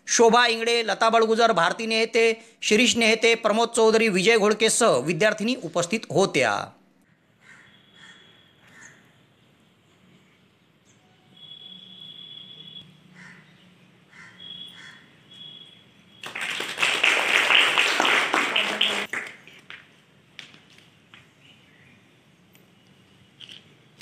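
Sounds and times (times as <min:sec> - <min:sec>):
bird chirping: 0:10.8 - 0:16.2
people clapping: 0:16.2 - 0:20.8.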